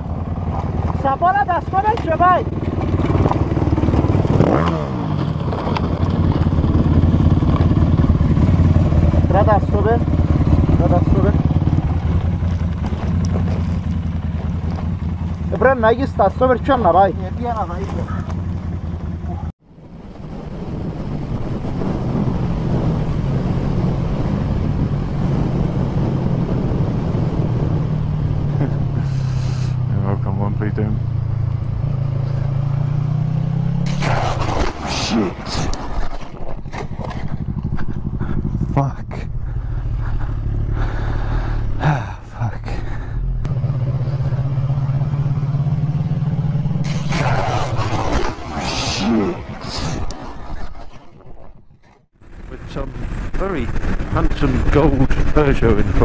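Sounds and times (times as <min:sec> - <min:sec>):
dirt bike revving: 0:00.0 - 0:19.5, 0:21.2 - 0:56.0
off-road engine running: 0:00.0 - 0:56.0
wind rushing over microphone: 0:19.7 - 0:29.9, 0:31.0 - 0:56.0.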